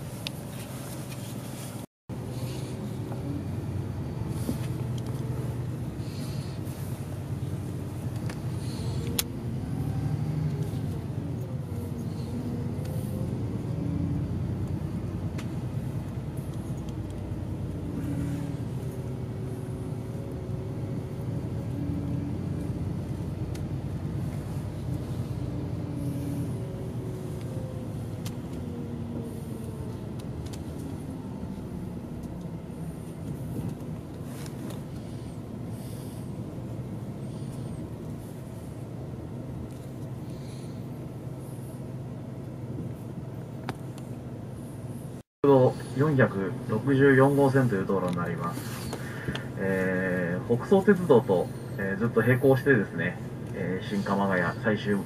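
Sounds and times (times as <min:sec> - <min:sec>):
bus engine and road rumble: 0:00.0 - 0:55.0
faint whine: 0:00.1 - 0:55.0.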